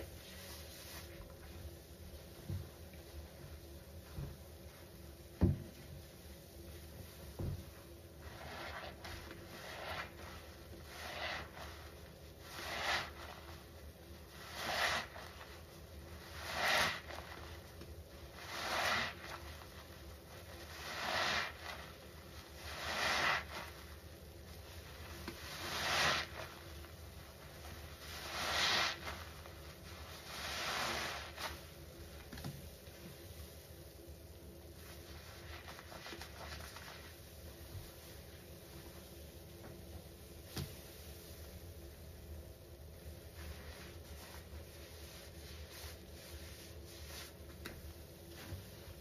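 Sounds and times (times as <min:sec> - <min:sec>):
soap suds squishing: 0:08.2 - 0:32.3, 0:34.8 - 0:37.3.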